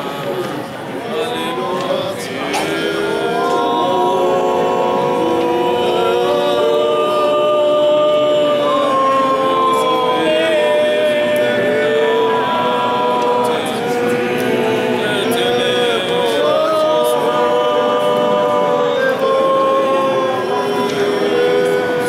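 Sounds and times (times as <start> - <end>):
group singing a hymn: 0.0 - 22.0.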